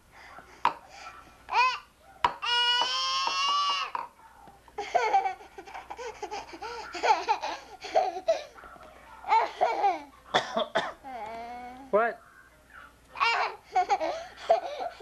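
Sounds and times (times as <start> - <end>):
toddler squealing: 2.4 - 4.0
toddler laughing and babbling: 4.8 - 8.6, 9.3 - 10.1, 13.2 - 15.0.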